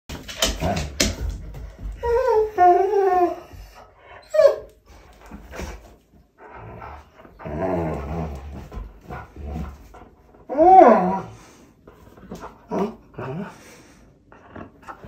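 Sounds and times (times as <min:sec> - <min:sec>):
dog whining: 0:01.9 - 0:04.8, 0:10.5 - 0:11.4.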